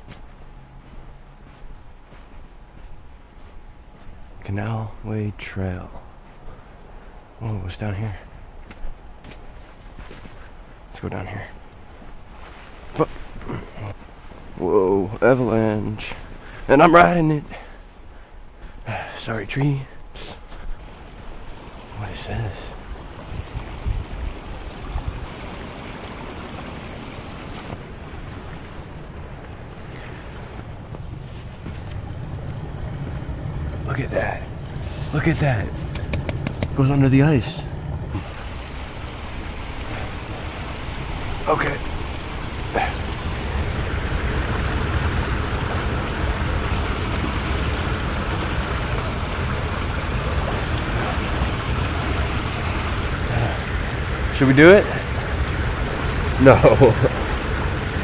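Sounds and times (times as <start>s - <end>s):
creek water rushing: 6.0s - 58.0s
low thumps: 27.7s - 54.4s.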